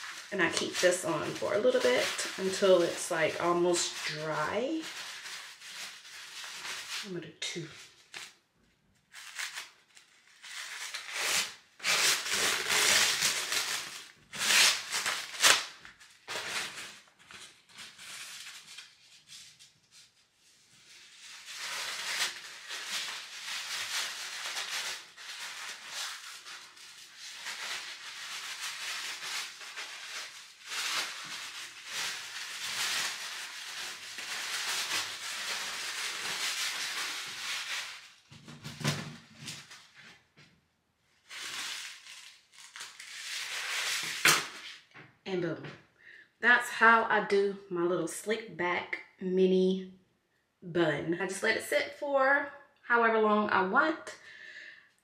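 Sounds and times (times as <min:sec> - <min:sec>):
hands rustling hair wrap: 0:11.9 - 0:38.5, 0:41.3 - 0:44.8.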